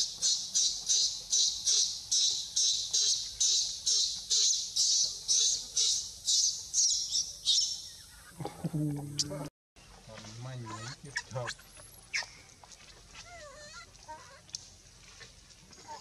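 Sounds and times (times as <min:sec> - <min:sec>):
baby monkey screaming: 0:10.6 - 0:11.3.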